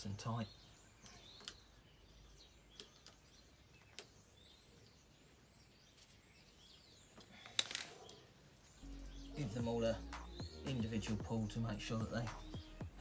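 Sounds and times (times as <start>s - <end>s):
birdsong chirps: 0.0s - 13.0s.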